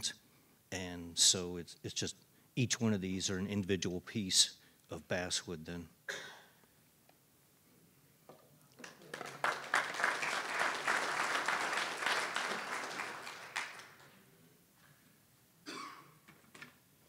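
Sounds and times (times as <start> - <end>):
audience applauding: 8.8 - 14.2.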